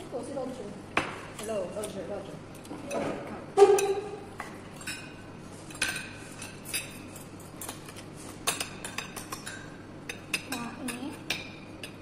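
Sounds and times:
cutlery clinking on plates: 2.6s - 12.0s.

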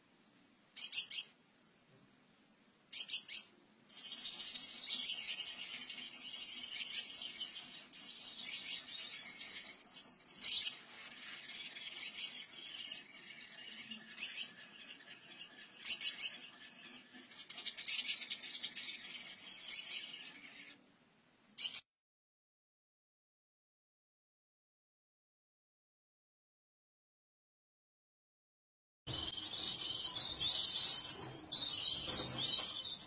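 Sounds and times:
sharp high bird calls: 0.8s - 1.3s, 2.9s - 20.5s, 21.6s - 21.8s.

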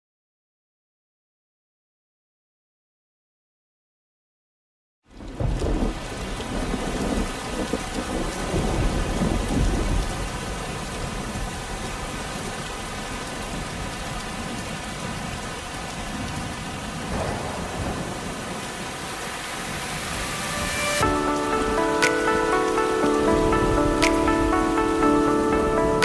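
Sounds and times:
waterfall pouring over rocks: 5.2s - 25.0s.

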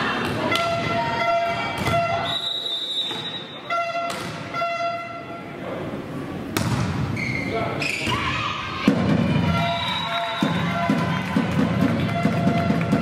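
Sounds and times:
referee's whistle blast: 1.9s - 5.0s
ball being struck: 4.1s - 4.4s, 6.6s - 7.0s.

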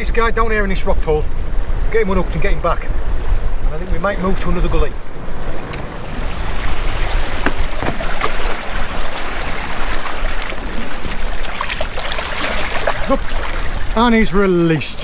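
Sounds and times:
seawater washing among rocks: 3.7s - 15.0s
small splashes: 5.7s - 14.0s.

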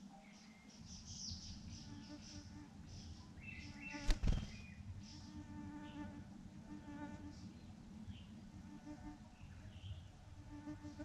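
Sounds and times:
insect buzzing: 3.7s - 7.3s.

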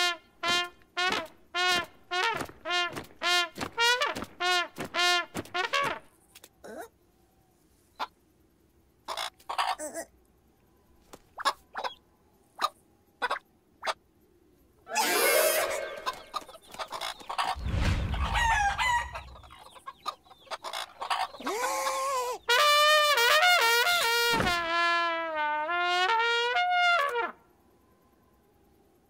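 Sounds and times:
short squeaky noises: 14.9s - 19.6s
low thud: 17.6s - 19.4s.

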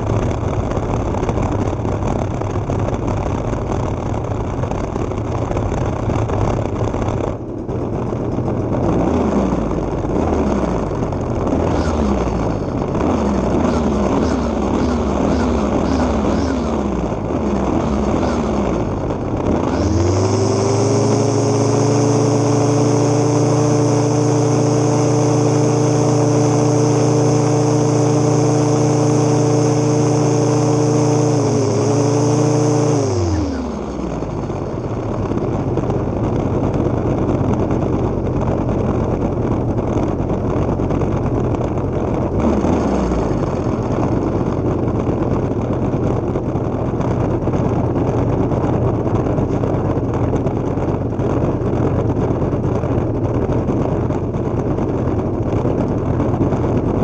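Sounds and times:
string trimmer engine revving: 8.8s - 35.8s, 42.3s - 44.7s.

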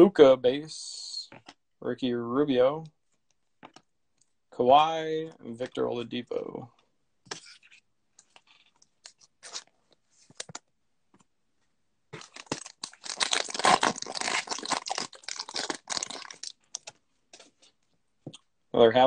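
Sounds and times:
foil wrapper tearing and crinkling: 12.2s - 16.9s.

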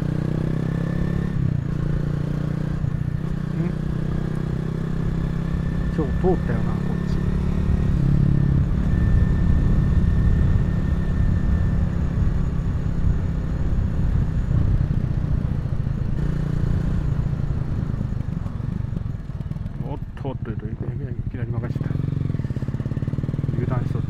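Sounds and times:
motorcycle engine running: 0.0s - 24.0s
low rumble: 12.5s - 20.2s.

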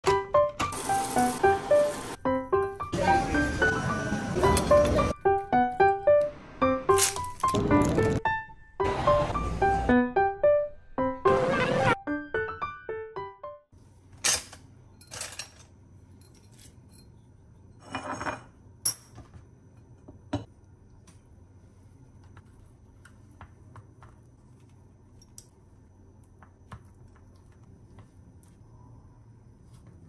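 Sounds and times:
utensils clattering and clinking: 14.2s - 17.1s.

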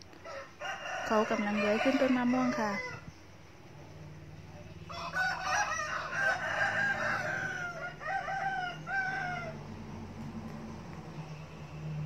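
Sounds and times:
steady low hum: 2.4s - 12.0s.

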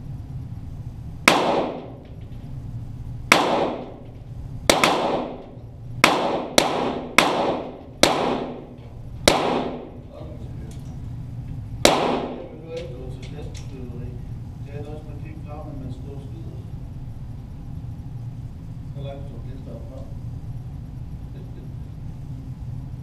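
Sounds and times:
pistol shots with echo: 1.3s - 2.3s, 3.3s - 10.1s, 11.8s - 12.6s.

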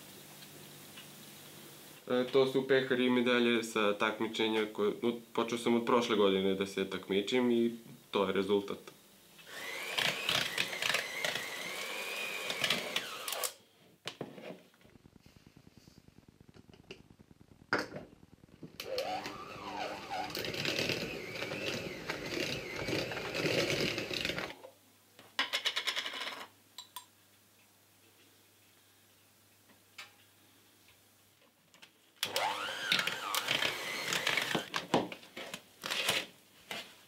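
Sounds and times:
electric mixer running: 9.5s - 13.6s, 14.8s - 24.5s, 32.2s - 34.7s.

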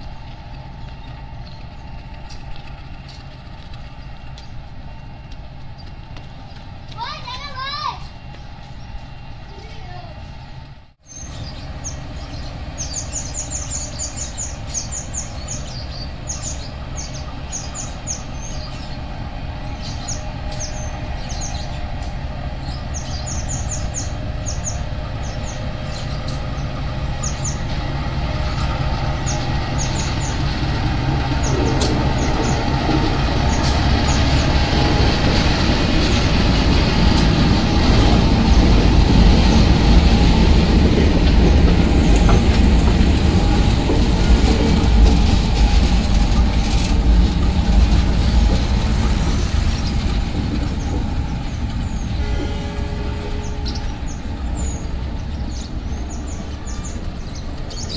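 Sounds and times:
diesel locomotive engines passing: 0.0s - 57.9s.

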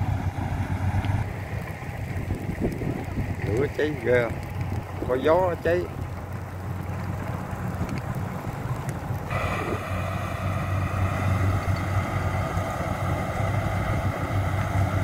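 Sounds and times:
combine harvester engine drone: 0.0s - 15.0s
high machinery whine: 9.3s - 15.0s.

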